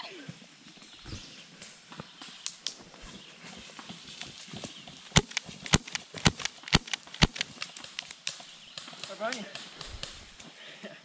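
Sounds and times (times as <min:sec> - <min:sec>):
airsoft pistol shots: 0:05.2 - 0:08.1.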